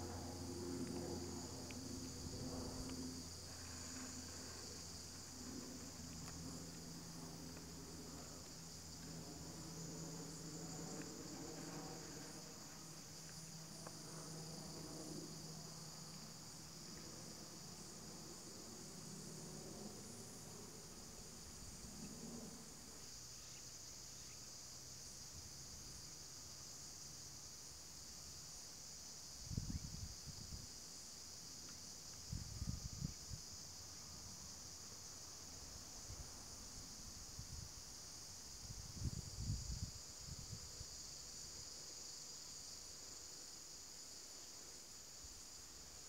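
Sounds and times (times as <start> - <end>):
low steady hum: 0.0 - 24.0
high-pitched insect chorus: 0.0 - 46.0
faint ticks: 5.2 - 6.8.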